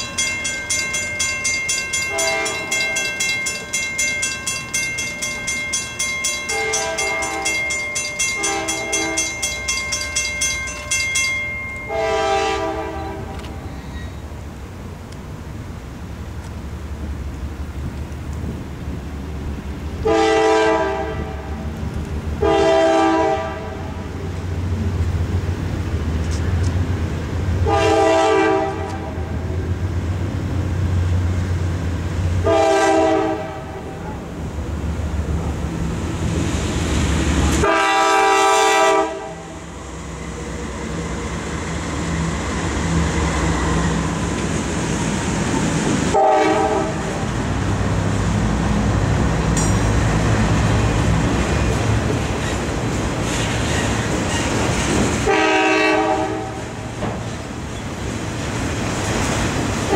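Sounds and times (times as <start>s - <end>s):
diesel locomotive rumble: 0.0s - 59.9s
train horn blasts: 2.1s - 3.1s, 6.5s - 7.6s, 8.3s - 9.5s, 11.8s - 14.2s, 20.0s - 21.7s, 22.4s - 24.1s, 27.6s - 29.4s, 32.4s - 34.2s, 37.6s - 39.6s, 46.1s - 47.3s, 55.2s - 56.9s.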